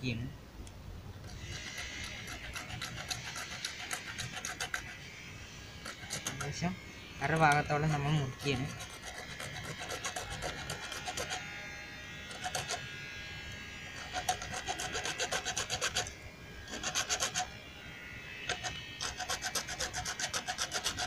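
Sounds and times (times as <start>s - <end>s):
hacksaw cutting plastic pipe: 1.2s - 5.0s, 5.8s - 6.6s, 7.3s - 11.5s, 12.3s - 12.8s, 14.0s - 16.1s, 16.7s - 17.5s, 18.5s - 21.0s.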